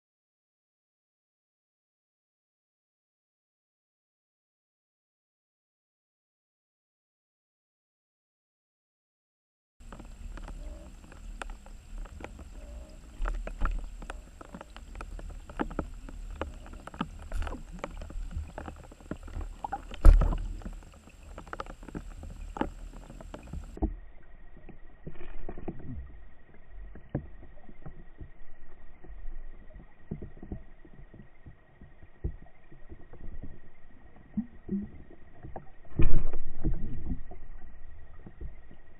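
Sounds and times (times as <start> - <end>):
muffled underwater rumble: 9.8 - 38.9.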